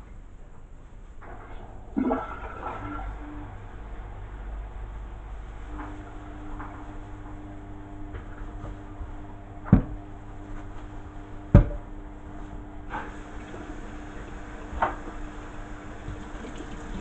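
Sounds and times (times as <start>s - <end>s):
tap water running: 1.2s - 3.5s, 12.9s - 17.0s.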